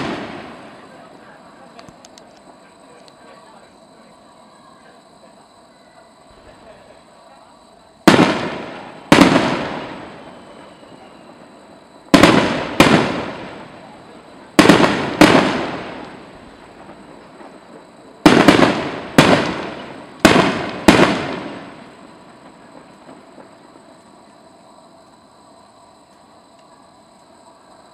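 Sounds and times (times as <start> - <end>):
firework shells bursting: 0.0 - 1.0, 8.0 - 23.9.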